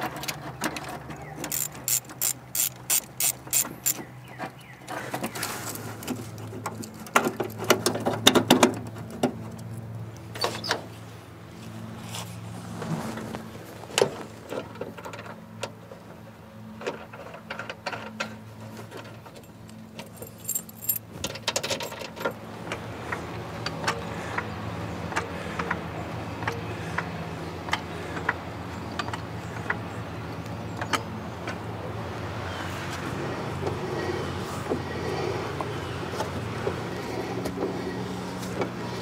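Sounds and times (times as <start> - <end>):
metal clinking and jangling: 19.2 - 22.4.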